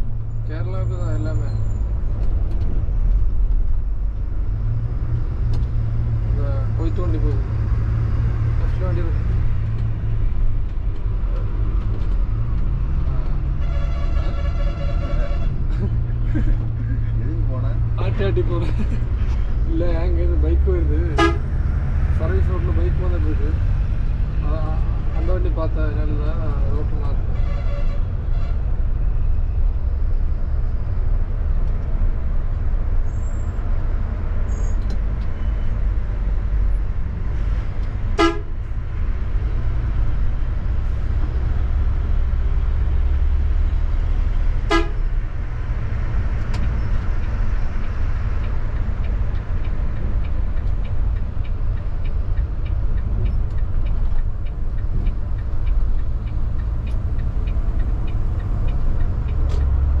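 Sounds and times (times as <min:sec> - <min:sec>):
horn blasts: 0:13.6 - 0:15.6, 0:21.1 - 0:21.5, 0:38.2 - 0:38.5, 0:44.7 - 0:45.0
faint regular ticking: 0:46.0 - 1:00.0.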